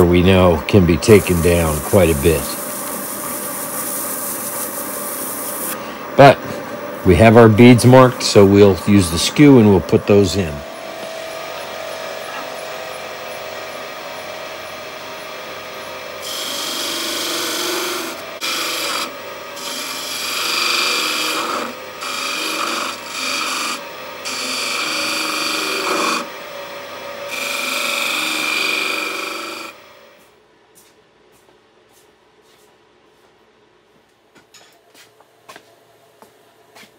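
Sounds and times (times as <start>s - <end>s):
chisel scraping spinning wood: 0.0s - 5.8s, 16.2s - 26.4s, 27.3s - 29.9s
wood lathe humming: 0.0s - 30.2s.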